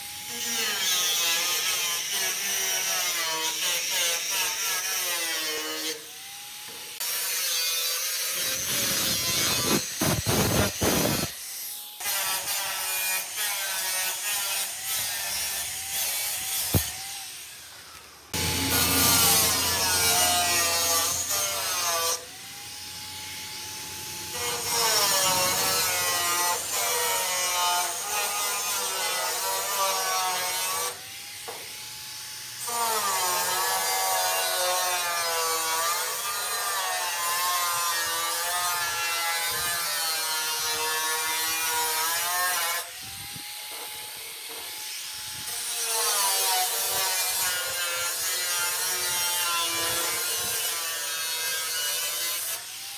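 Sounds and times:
angle grinder cutting sheet steel: 0:00.0 - 0:52.9.

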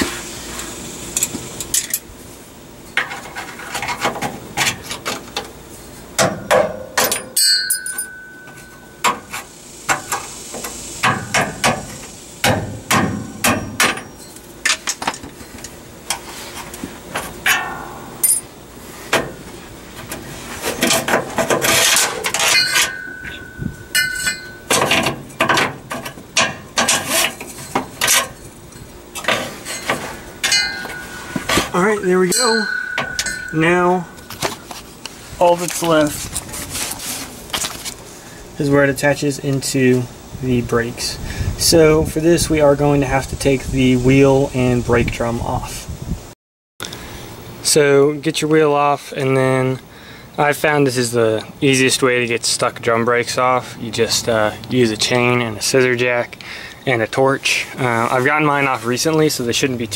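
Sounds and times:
metallic knocking and clinking: 0:17.5 - 0:18.5, 0:20.8 - 0:27.1, 0:29.2 - 0:34.6
cables scraping along metal frame: 0:26.9 - 0:28.4.

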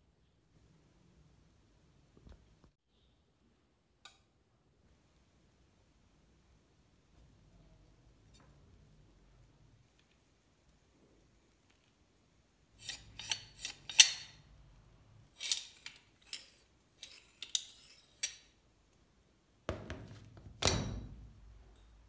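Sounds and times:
wrench knocking on table: 0:19.7 - 0:21.0.

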